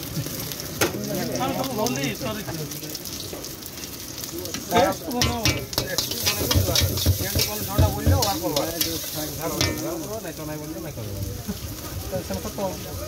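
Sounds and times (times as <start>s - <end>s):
food sizzling in oil: 0.0s - 13.0s
metal spatula scraping a wok: 5.4s - 10.1s.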